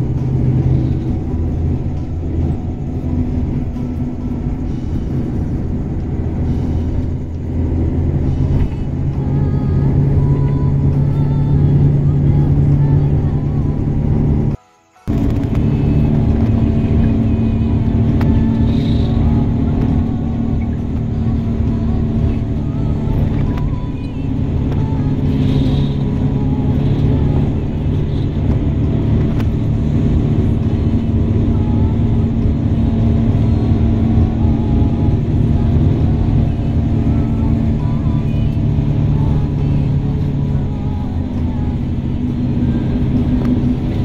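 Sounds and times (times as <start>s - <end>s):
vehicle engine and road noise: 0.0s - 44.0s.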